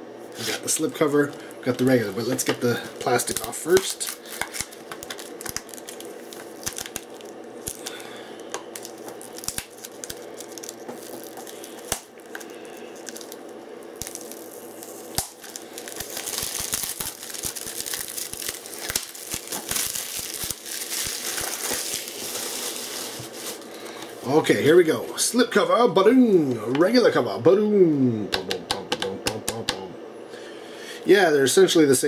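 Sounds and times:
plastic wrap crinkling and tearing: 3.0 - 24.0.

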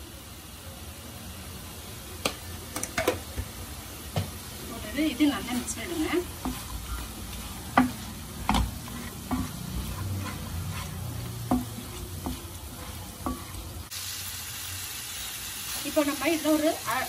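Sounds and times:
frying sizzle: 0.0 - 17.0
wooden spatula scraping a pan: 4.7 - 13.9.

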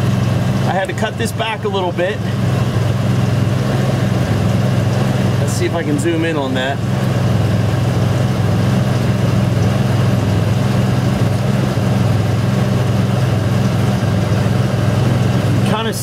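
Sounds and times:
engine idling: 0.0 - 16.0.

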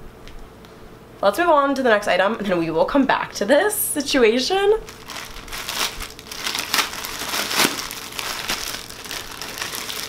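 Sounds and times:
plastic mailer bag crinkling: 4.8 - 10.0.

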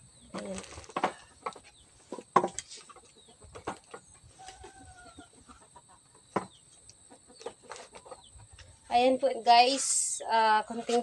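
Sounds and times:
chicken clucking: 2.7 - 8.9.

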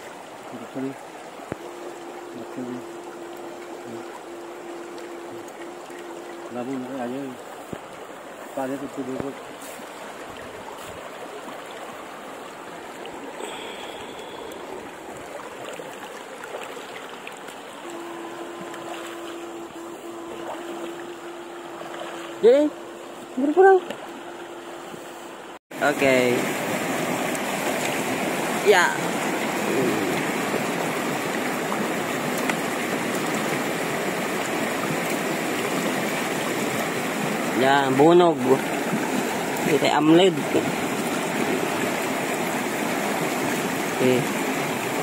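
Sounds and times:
river water trickling over stones: 0.0 - 45.0
steady hum: 0.1 - 7.6, 17.7 - 43.5.

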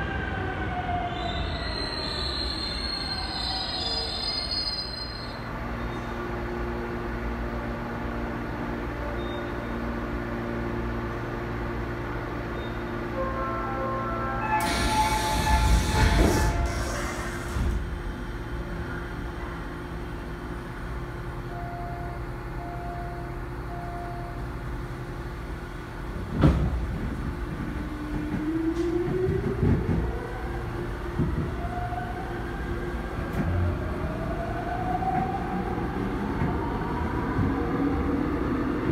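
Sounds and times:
subway car equipment hum: 0.0 - 38.9
train running rumble: 14.0 - 38.9
train motors whining: 14.6 - 19.3.

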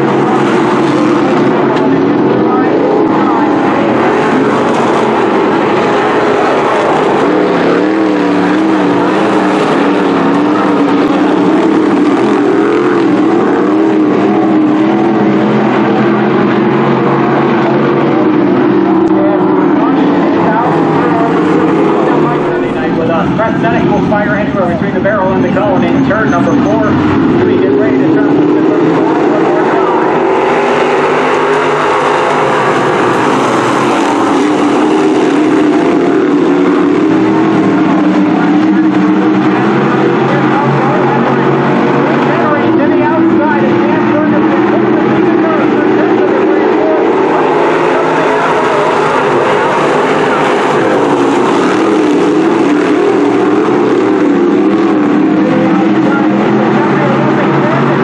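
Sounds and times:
race car engines running hard: 0.0 - 58.0.

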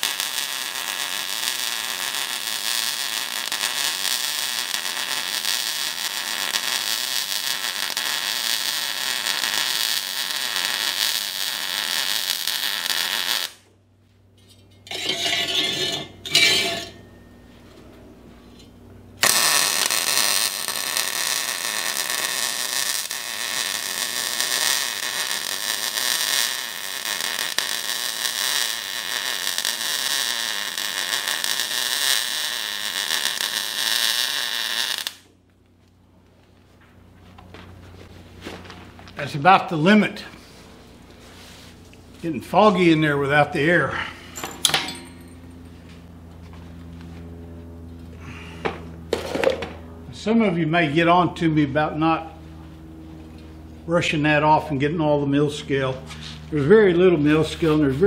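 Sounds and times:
welding arc frying hiss: 0.0 - 13.6, 19.2 - 35.3.

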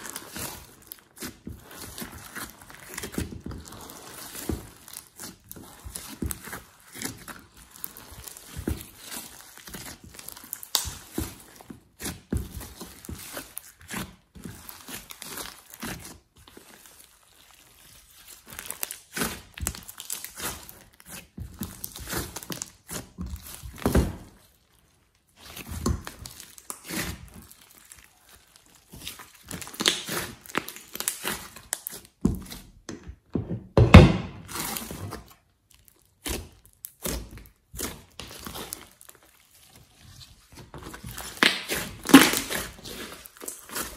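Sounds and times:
hands squishing slime: 0.0 - 33.3, 33.9 - 43.9
slime popping: 40.9 - 43.9.

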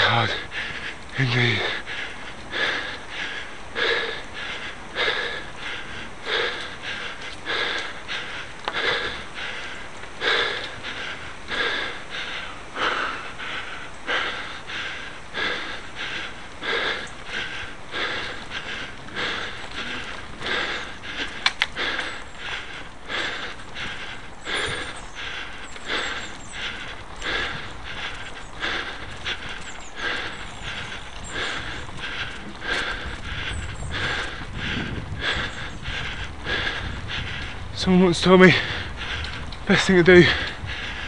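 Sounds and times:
heavy rhythmic breathing: 0.0 - 41.0
sharp clicks: 19.3 - 23.7.

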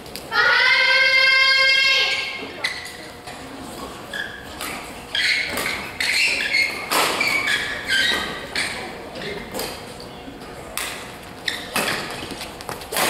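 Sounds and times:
shoes squeaking on court floor: 2.4 - 10.5, 11.2 - 13.0.

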